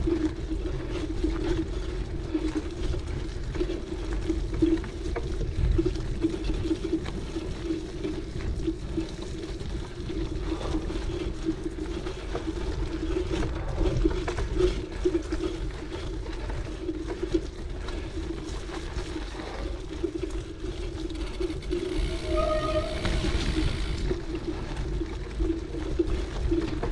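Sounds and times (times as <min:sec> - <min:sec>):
bike rattles and clicks: 0:00.0 - 0:26.9
bike tyres humming on dirt: 0:00.0 - 0:26.9
wind rushing over microphone: 0:21.6 - 0:24.2.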